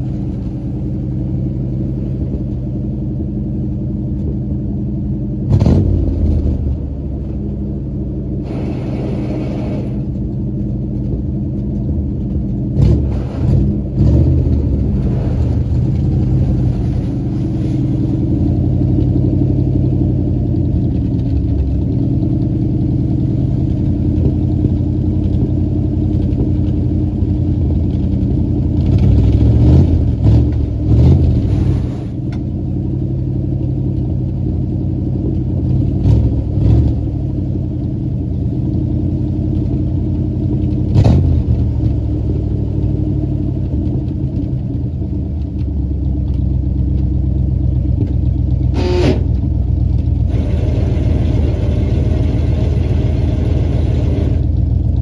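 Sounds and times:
truck engine revving: 8.3 - 10.3, 12.7 - 24.4, 28.8 - 32.4, 48.6 - 49.5, 50.2 - 54.5.

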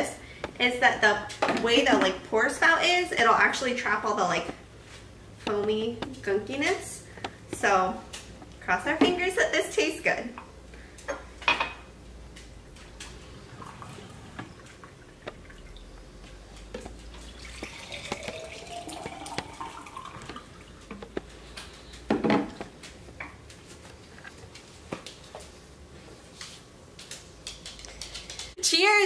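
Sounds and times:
juice pouring into glass jar: 13.4 - 15.9, 17.2 - 20.8.

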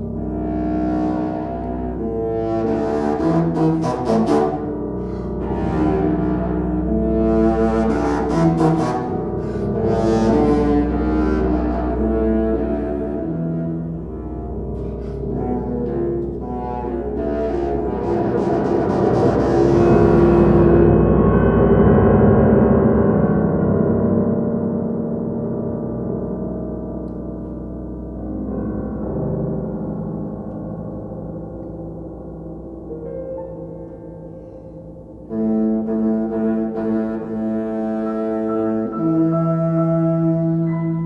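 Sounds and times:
contrabassoon: 0.0 - 21.1, 35.1 - 41.0
piano: 0.0 - 41.0.

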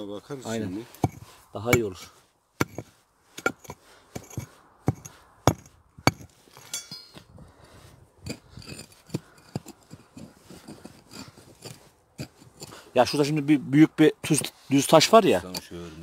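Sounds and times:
loose stones rattling: 0.8 - 7.4, 8.2 - 13.4, 14.2 - 16.0
stones knocking and clinking: 1.0 - 7.3, 8.2 - 12.8.

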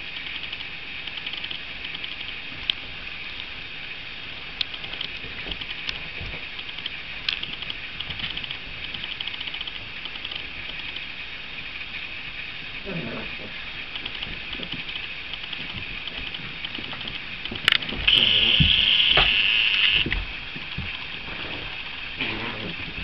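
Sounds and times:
paws clicking and scrabbling: 4.6 - 11.1, 13.9 - 18.8, 20.0 - 23.0.

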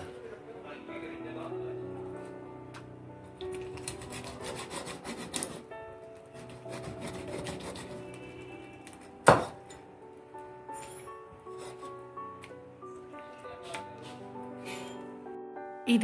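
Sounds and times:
background music: 0.0 - 16.0
cleaver scraping and sawing meat: 3.7 - 5.6, 6.4 - 8.4.

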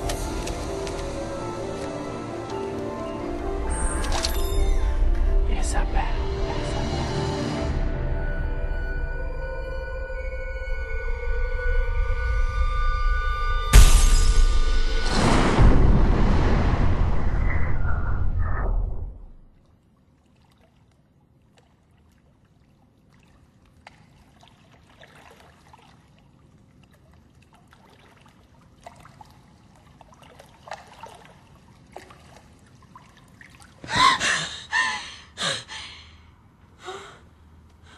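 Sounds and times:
orchestral film score: 0.0 - 16.0
underwater bubbling and trickling: 19.5 - 34.0
woman gasping for breath: 33.9 - 37.9.

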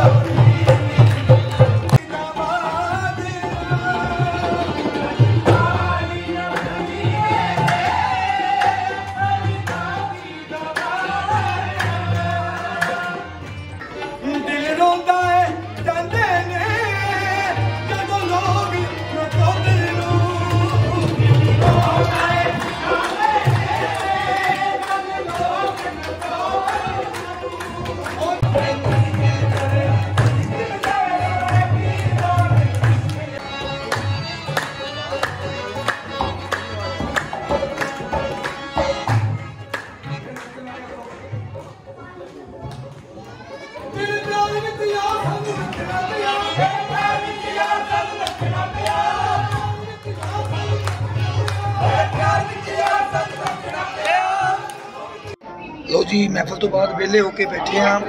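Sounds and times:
man singing: 0.0 - 13.3, 14.1 - 34.3, 44.0 - 55.3
people clapping along: 0.0 - 55.4
harmonium: 0.0 - 58.0.

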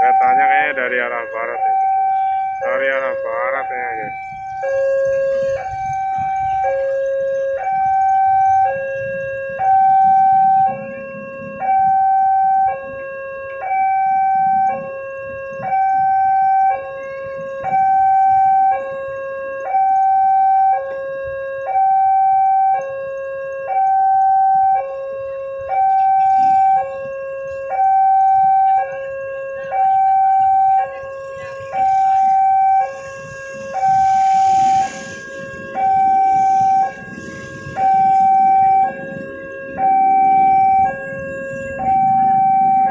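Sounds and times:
level crossing alarm two tones: 0.0 - 13.0, 13.6 - 42.9.

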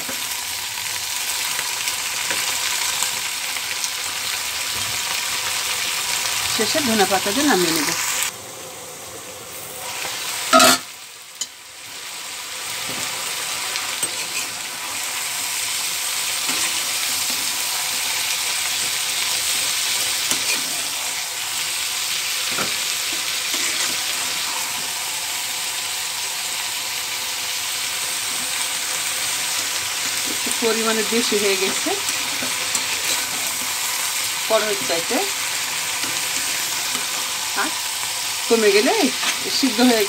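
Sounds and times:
vegetables sizzling in oil: 0.0 - 40.0
steel spatula stirring: 14.0 - 15.0.

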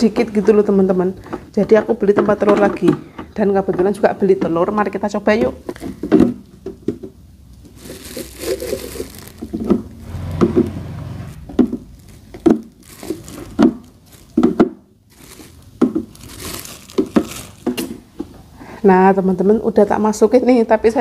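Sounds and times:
plastic bag crinkling: 5.6 - 6.3, 7.5 - 10.2, 11.5 - 18.0.

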